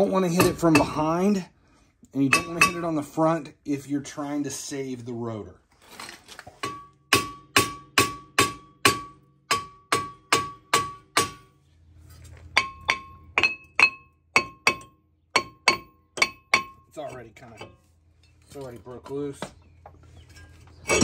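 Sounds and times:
hammer blows ringing on metal: 2.3s - 2.9s, 6.7s - 11.5s, 12.6s - 16.9s.

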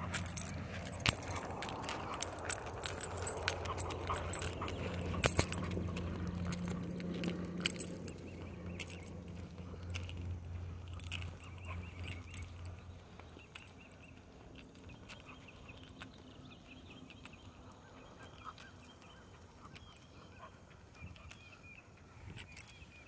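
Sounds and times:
low hum: 0.0s - 17.3s
birds chirping: 0.0s - 23.0s
light footsteps on asphalt: 0.0s - 23.0s.

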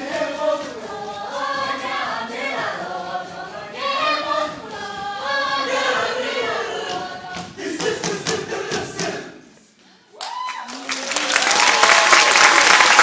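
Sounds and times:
choir singing: 0.0s - 9.7s.

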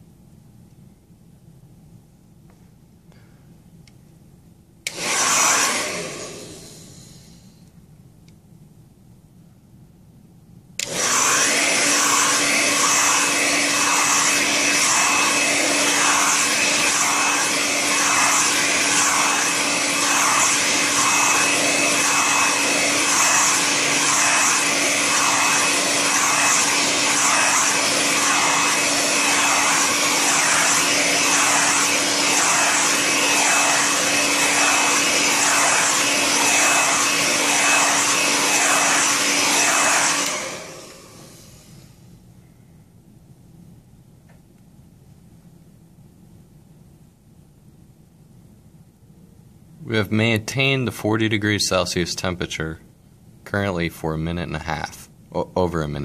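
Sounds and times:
hair dryer running: 4.9s - 7.4s, 10.8s - 42.0s.

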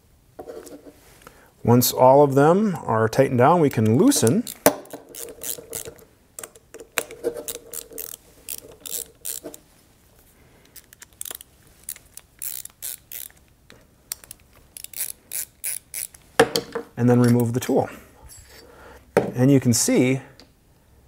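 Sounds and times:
ratcheting driver clicking: 3.8s - 9.6s, 10.8s - 13.4s.

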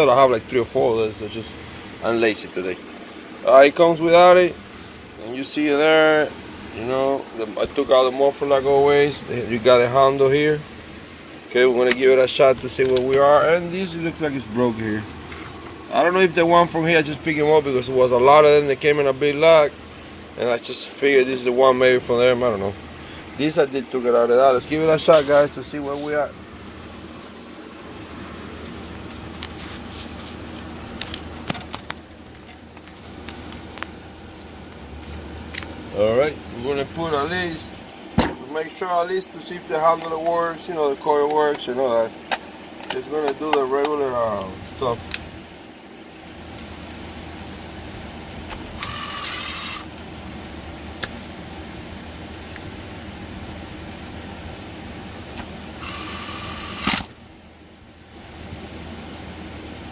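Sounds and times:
low workshop hum: 0.0s - 59.9s
handling clicks and knocks: 31.0s - 34.8s
cordless driver running: 48.5s - 49.9s, 55.8s - 57.2s.

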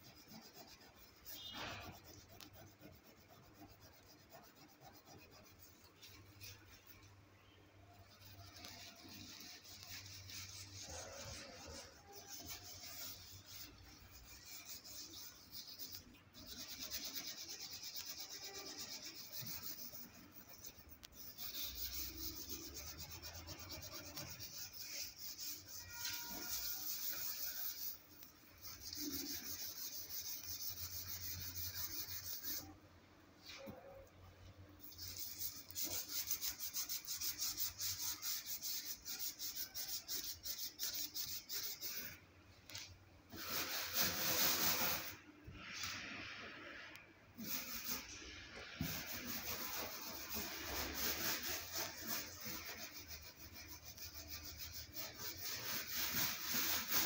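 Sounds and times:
hand scrubbing glass: 8.0s - 32.7s, 48.8s - 57.0s.

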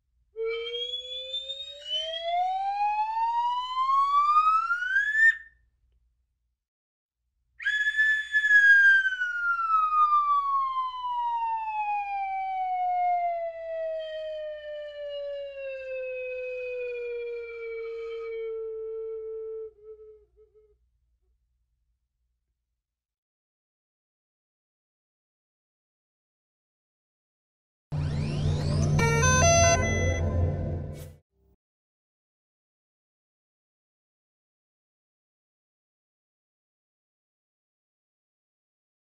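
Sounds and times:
siren-like gliding tone: 0.4s - 5.4s, 9.2s - 20.2s, 27.9s - 31.1s.

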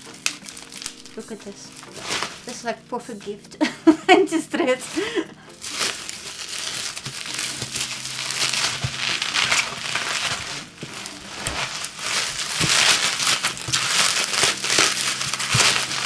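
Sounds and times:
plastic wrap crinkling: 0.0s - 16.0s.

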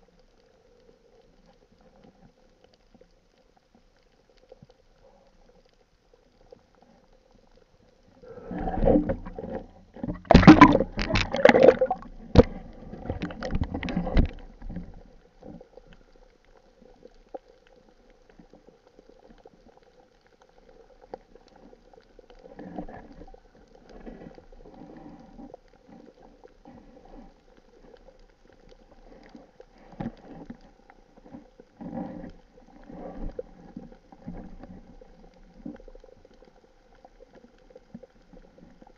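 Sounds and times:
water gurgling underwater: 8.2s - 16.2s.

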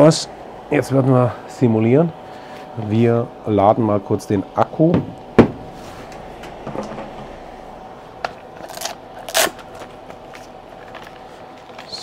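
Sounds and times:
faint steady hum: 0.0s - 12.0s
rustling scrapes: 5.7s - 6.1s.

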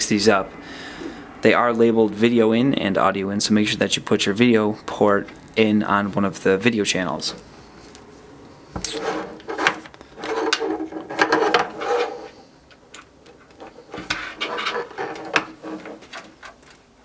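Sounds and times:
cables rubbing on table: 8.8s - 16.6s.

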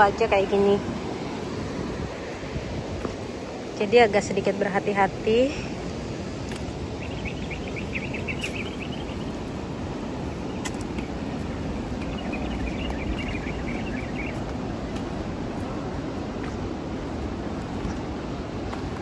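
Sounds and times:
outdoor background noise: 0.0s - 19.0s
insect chirping trill: 7.0s - 14.4s.

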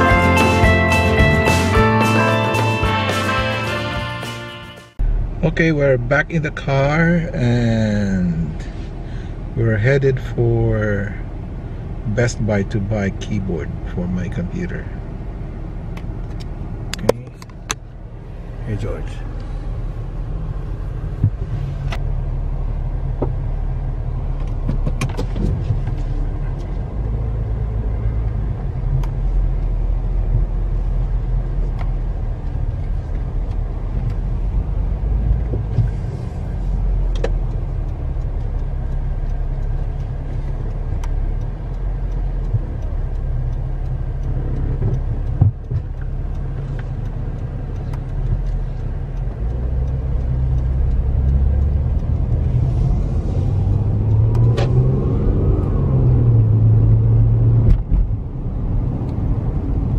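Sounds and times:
car engine and road rumble: 0.0s - 59.9s.

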